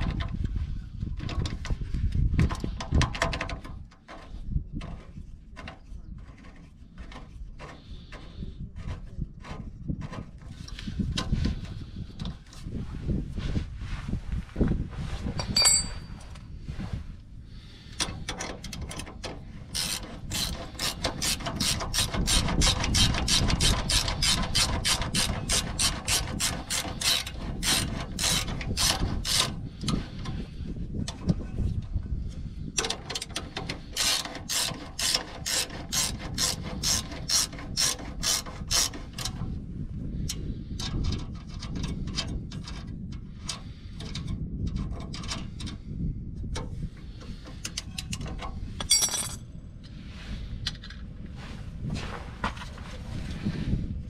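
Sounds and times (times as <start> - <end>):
ratchet wrench clicking: 19.7 - 29.5.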